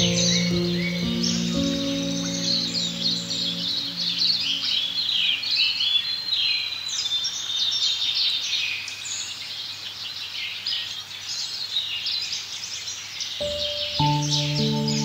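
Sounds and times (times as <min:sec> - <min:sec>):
birds chirping and singing: 0:00.0 - 0:06.6, 0:13.4 - 0:15.0.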